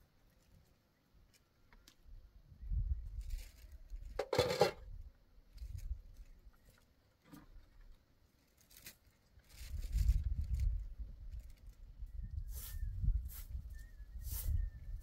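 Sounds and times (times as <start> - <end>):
rustling clatter: 3.3 - 4.9
wind gusting against microphone: 9.6 - 15.0.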